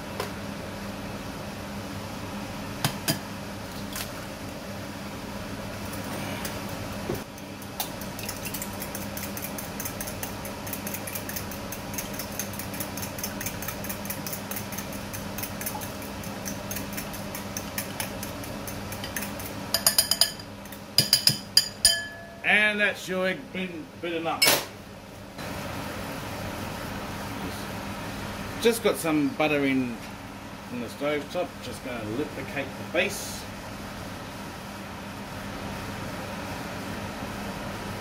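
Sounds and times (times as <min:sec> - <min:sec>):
low steady hum: 0:00.0 - 0:38.0
whisk clicking against glass bowl: 0:07.7 - 0:22.0.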